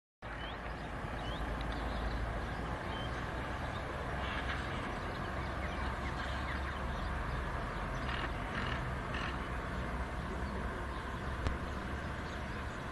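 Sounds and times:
bird chirps: 0.2s - 9.4s
low outdoor rumble: 0.2s - 12.9s.

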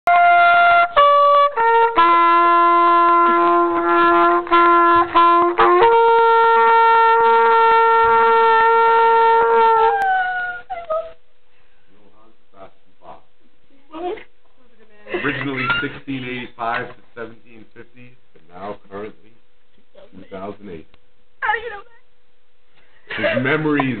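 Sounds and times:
brass instrument playing slow tune: 0.1s - 10.6s.

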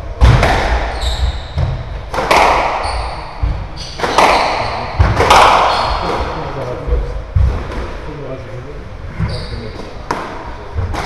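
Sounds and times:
squash ball hits echoing: 0.0s - 8.1s, 9.8s - 11.0s
footsteps thudding: 0.2s - 4.1s, 6.9s - 7.9s
court shoes squeaking: 0.8s - 6.4s, 9.1s - 11.0s.

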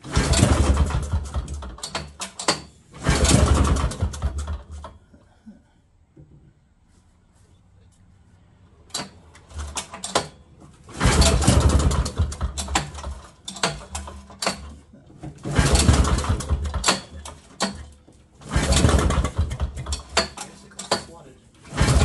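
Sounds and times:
snowmobile engine pull-started: 0.0s - 5.0s, 10.9s - 14.8s, 15.4s - 22.0s.

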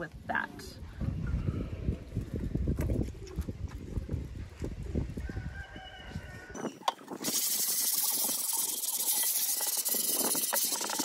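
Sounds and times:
sponge scrubbing steel griddle: 7.2s - 11.0s.

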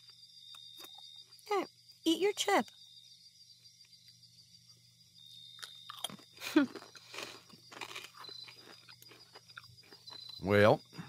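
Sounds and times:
chewing crunchy chips: 5.6s - 10.5s.

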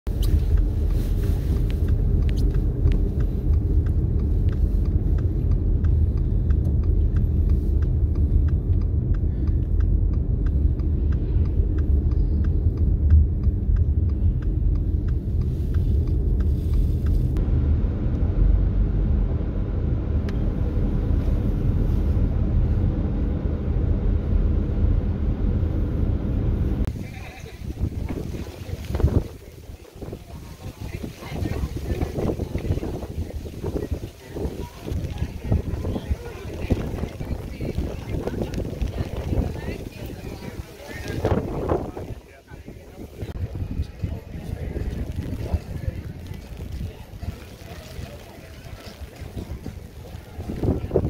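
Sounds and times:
car road and engine rumble: 0.0s - 51.0s
faint regular ticking: 0.1s - 17.4s.

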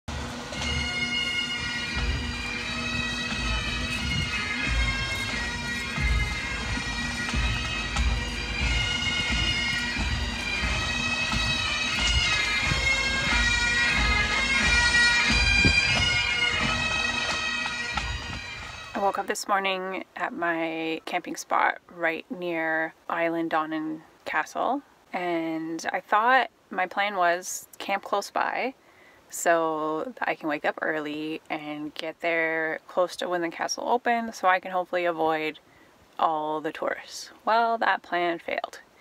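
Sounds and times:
bagpipes playing melody: 0.1s - 19.3s
bass drum beating: 1.9s - 17.2s.

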